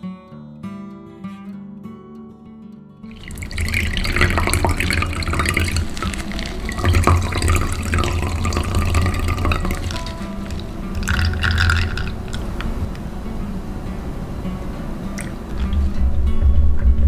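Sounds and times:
acoustic guitar music: 0.0 - 17.0
juice pouring into a jug: 3.1 - 13.0, 15.1 - 16.0.

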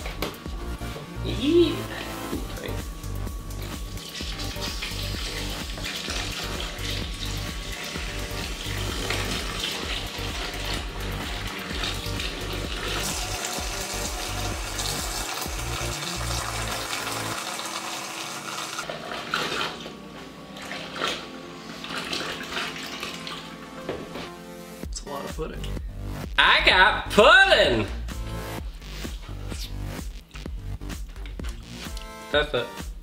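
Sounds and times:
background music: 0.0 - 33.0.

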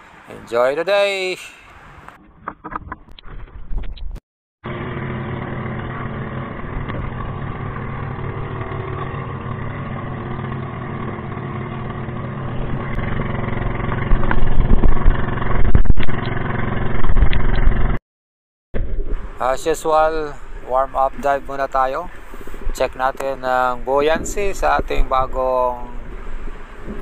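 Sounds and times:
boat engine droning: 4.7 - 18.0, 19.1 - 27.0.

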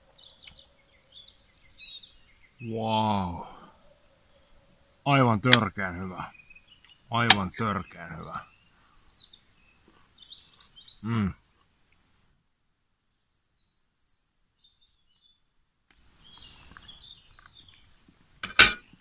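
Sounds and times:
small birds chirping: 0.0 - 12.2, 13.0 - 19.0
man's short voiced sound: 2.6 - 3.7, 11.0 - 11.4.

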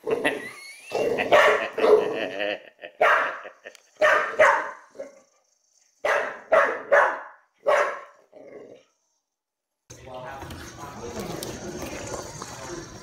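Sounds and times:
dog barking: 1.2 - 2.2, 3.0 - 4.9, 6.0 - 8.2.

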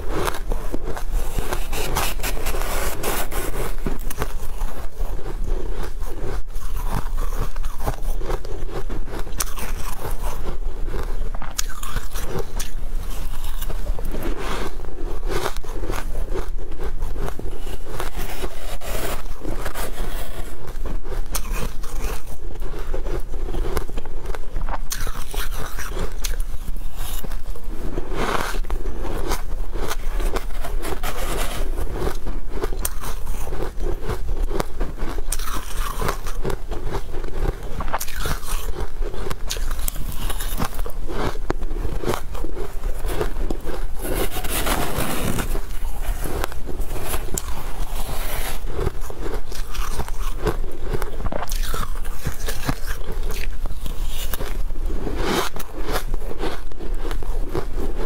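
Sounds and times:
shaved ice crunching while chewed: 0.0 - 58.0
spoon scraping ice: 9.2 - 10.6, 28.3 - 57.9.

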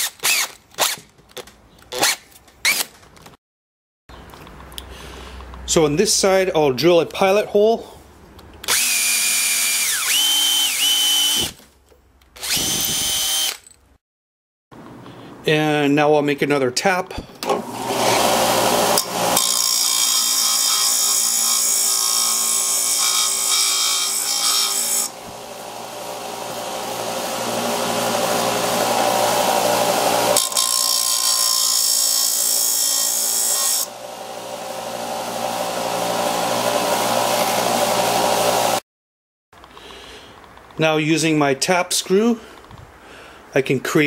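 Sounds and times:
sander motor running: 12.4 - 13.5, 25.1 - 30.4, 33.9 - 38.8.

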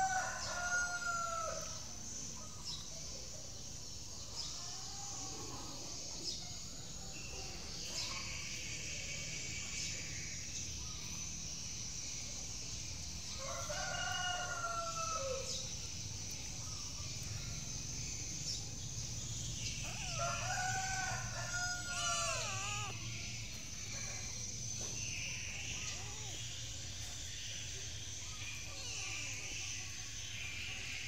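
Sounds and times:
rooster crowing: 0.0 - 1.8, 13.4 - 15.6, 19.8 - 23.1.

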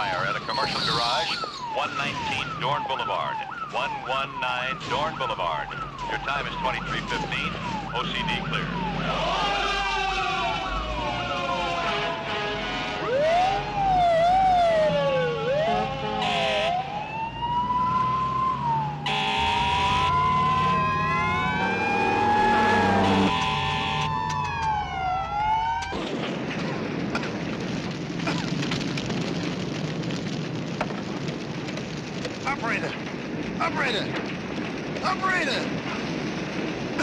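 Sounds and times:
fire hissing and crackling: 0.0 - 10.4, 25.8 - 37.0
fire engine sirens wailing: 0.0 - 26.2
horn blasts: 11.4 - 13.3, 15.6 - 16.8, 19.1 - 20.9, 22.6 - 24.1.

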